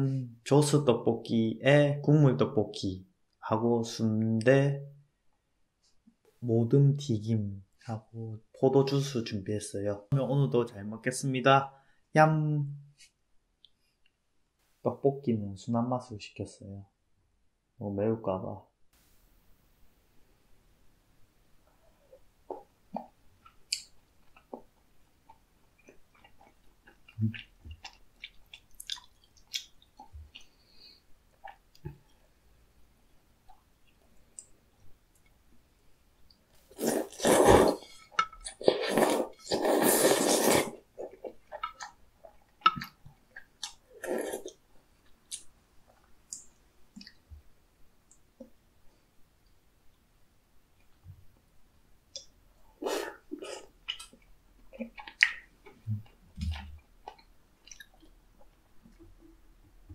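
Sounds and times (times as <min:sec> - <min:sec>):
person chewing: 0:22.5 - 0:31.9, 0:36.7 - 0:47.2, 0:52.1 - 0:58.6
noodles slurping: 0:36.7 - 0:42.0.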